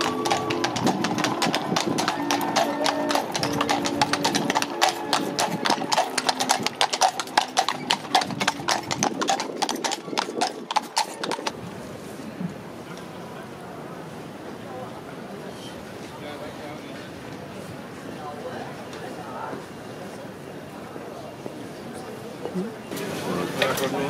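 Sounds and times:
music with long held notes: 0.0s - 7.4s
horse hooves on stone paving: 0.0s - 11.6s.

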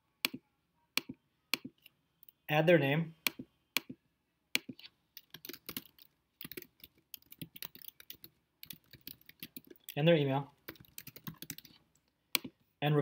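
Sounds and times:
typing on computer keyboard: 5.2s - 10.0s, 10.7s - 11.8s.

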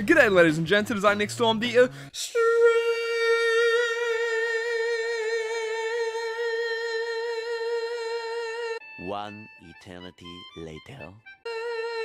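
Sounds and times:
man singing a long high note: 2.2s - 8.8s, 11.5s - 12.0s.

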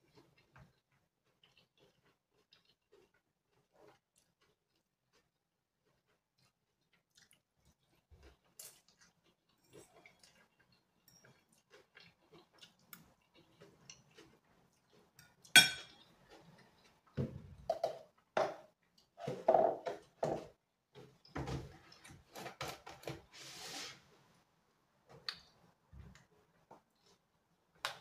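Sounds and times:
fork clinking on ceramic plate: 15.6s - 16.0s.

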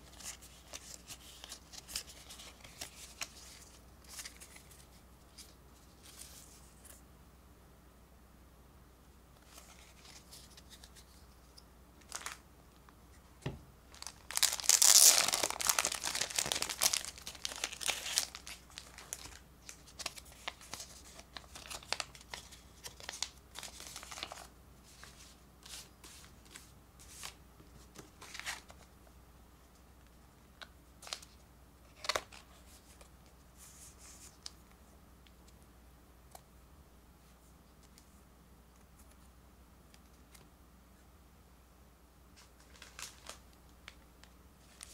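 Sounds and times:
plastic wrapping tearing and crinkling: 13.9s - 24.5s
soft clicks of cards handled: 34.0s - 36.5s, 37.6s - 40.5s.

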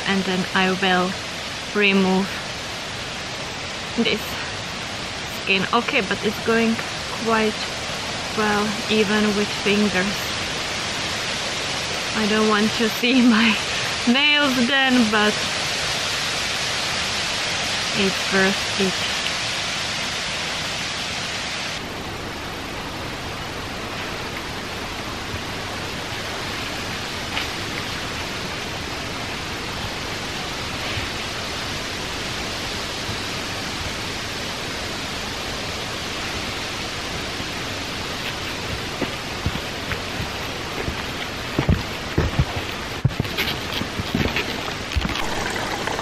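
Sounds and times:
brook water rushing: 0.0s - 46.0s
footsteps on earth path: 37.9s - 46.0s.

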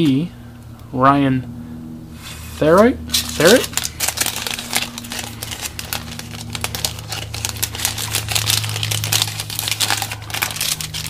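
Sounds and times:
steady low hum: 0.0s - 11.0s
foil wrapper crinkling: 3.1s - 11.0s
paper cards shuffling: 3.1s - 11.0s.

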